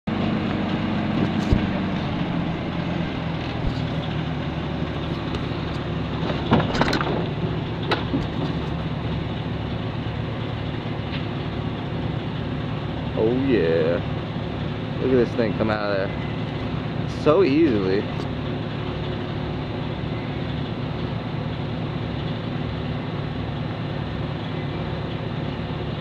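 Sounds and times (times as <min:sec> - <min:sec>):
engine running: 0:00.0 - 0:26.0
sharp knocks and clicks: 0:01.2 - 0:01.9, 0:07.9 - 0:08.8.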